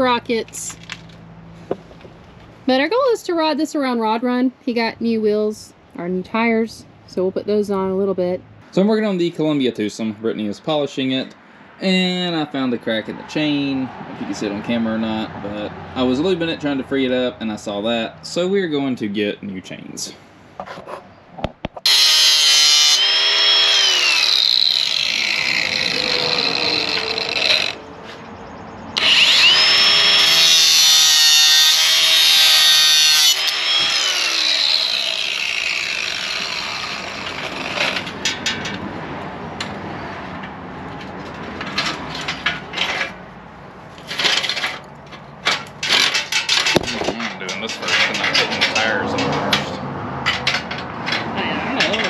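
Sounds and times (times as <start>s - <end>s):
power tool whining and grinding: 21.8s - 28.2s, 28.9s - 38.2s.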